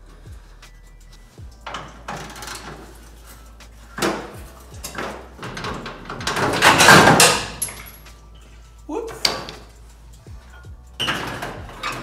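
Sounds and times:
metal knocks and clunks: 1.6s - 3.0s, 4.0s - 8.0s.

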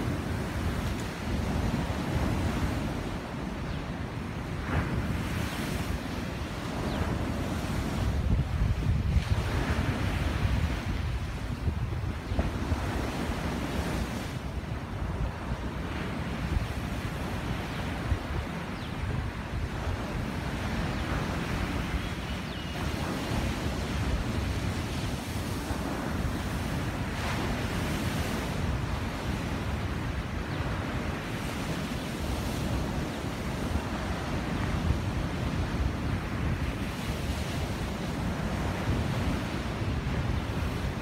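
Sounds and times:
surf breaking on a beach: 0.0s - 41.0s
wind rumbling on microphone: 0.0s - 41.0s.

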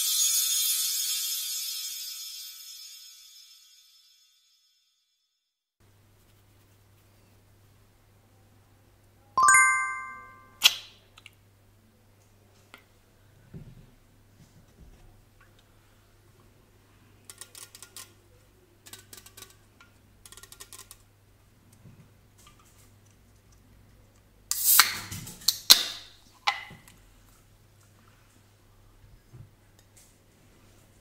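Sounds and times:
can ring-pull opening with fizz: 24.5s - 25.9s.

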